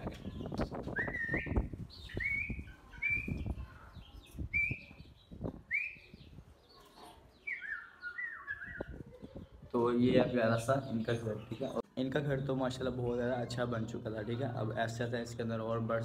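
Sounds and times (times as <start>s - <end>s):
parakeet whistling calls: 1.0s - 3.4s.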